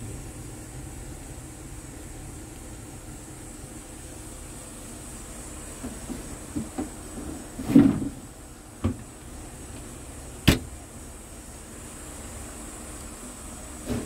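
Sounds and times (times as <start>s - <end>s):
steady low hum: 0.0s - 14.0s
knocks and bumps in truck cab: 5.8s - 8.2s, 8.8s - 9.1s.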